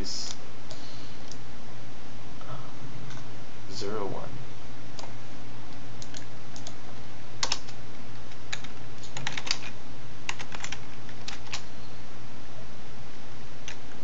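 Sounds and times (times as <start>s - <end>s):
low hum: 0.0s - 14.0s
computer keyboard typing: 6.0s - 6.8s, 7.4s - 11.7s, 13.6s - 14.0s.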